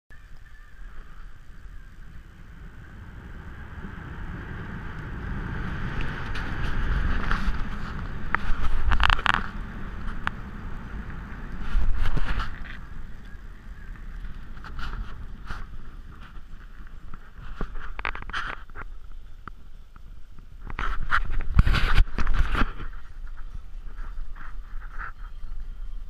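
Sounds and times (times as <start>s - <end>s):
car driving on snow: 0.8s - 26.0s.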